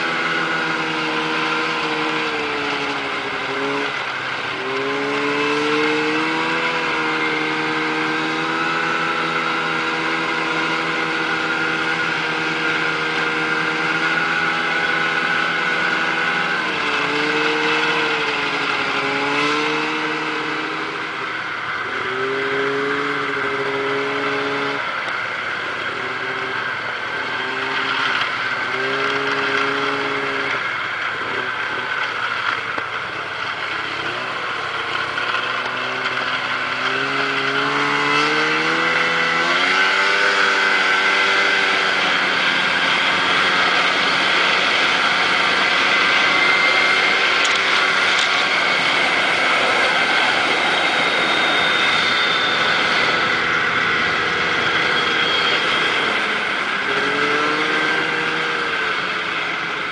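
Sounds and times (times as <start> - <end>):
snowmobile engine running: 0.0 - 59.9.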